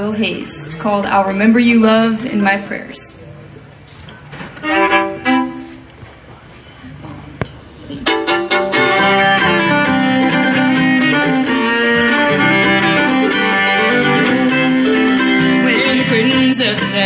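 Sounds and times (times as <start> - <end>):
fiddle melody: 4.6 - 5.9, 8.0 - 17.0
strummed acoustic guitar: 7.9 - 17.0.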